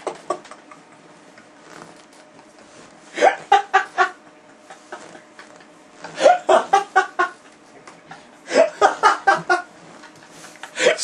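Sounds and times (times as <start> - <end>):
man laughing: 3.2 - 11.0.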